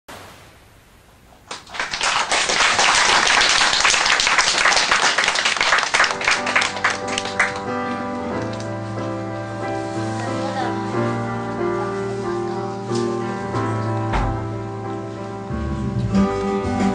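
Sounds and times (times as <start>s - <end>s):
audience applause: 1.5s - 7.8s
music with held notes: 6.0s - 16.9s.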